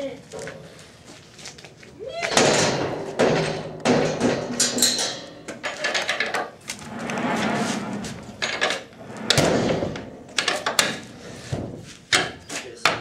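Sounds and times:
metal latch clicking and rattling: 0:02.3 - 0:06.5.

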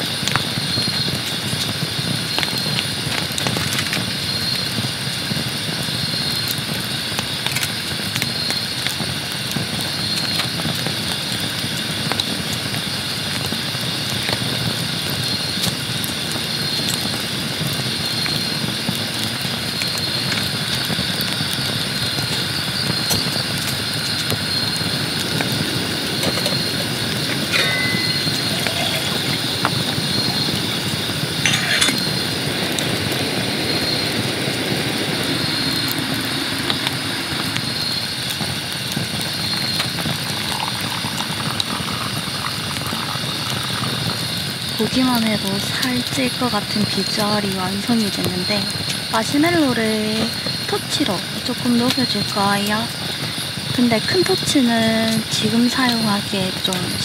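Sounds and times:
high-pitched chirp: 0:27.4 - 0:29.5.

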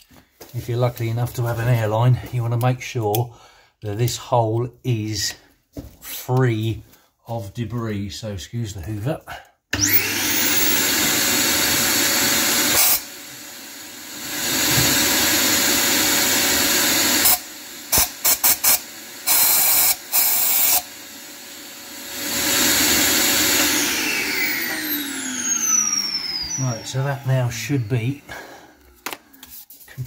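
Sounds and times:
vacuum cleaner sucking: 0:09.8 - 0:30.0
compressed air blow gun hissing: 0:17.2 - 0:20.9.

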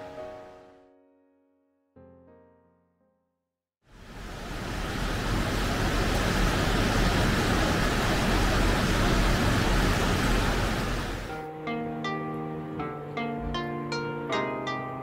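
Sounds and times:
stream of running water: 0:03.9 - 0:11.3.

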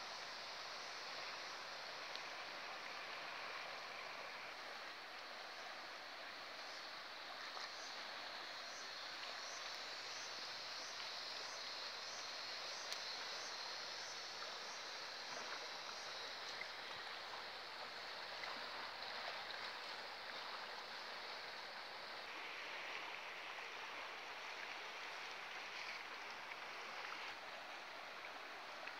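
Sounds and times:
faint ticks: 0:02.0 - 0:02.3, 0:08.8 - 0:14.5.

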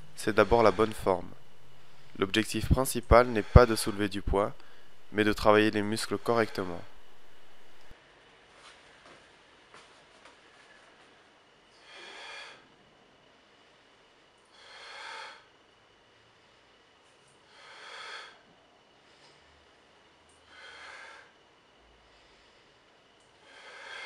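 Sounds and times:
man breathing with exertion: 0:11.7 - 0:24.0.

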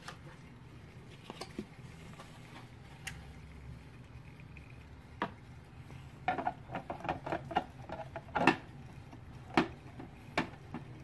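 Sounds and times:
clicks and knocks of hard objects: 0:06.2 - 0:11.0.

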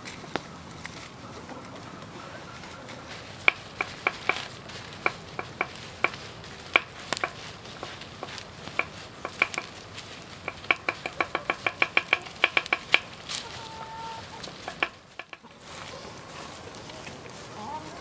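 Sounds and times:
knife tapping on wooden board: 0:03.5 - 0:07.4, 0:08.3 - 0:09.7, 0:10.4 - 0:13.1, 0:14.7 - 0:15.4.

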